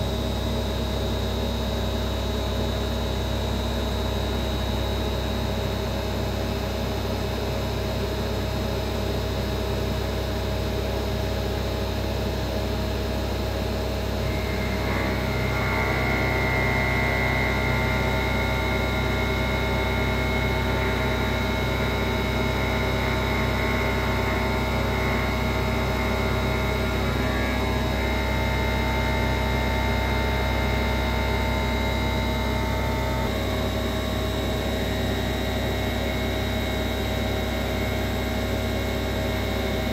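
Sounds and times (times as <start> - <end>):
higher steady machine tone: 0.0 - 39.9
engraving machine milling metal: 14.3 - 21.4.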